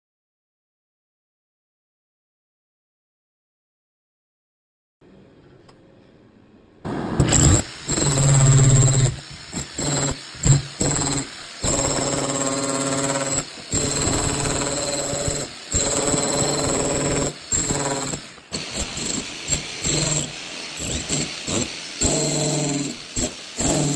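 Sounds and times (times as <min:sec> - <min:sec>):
demolition hammer chiselling masonry: 0:07.0 - 0:23.9.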